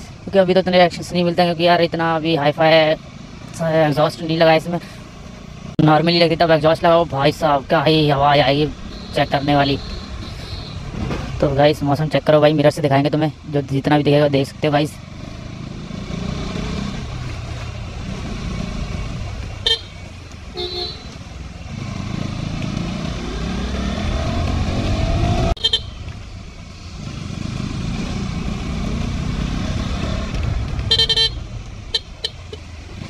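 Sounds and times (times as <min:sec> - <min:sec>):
vehicle horn beeps: 0:08.9 - 0:10.8, 0:19.6 - 0:21.2, 0:25.6 - 0:26.0, 0:30.9 - 0:32.6
motorcycle engine accelerating: 0:14.6 - 0:33.0.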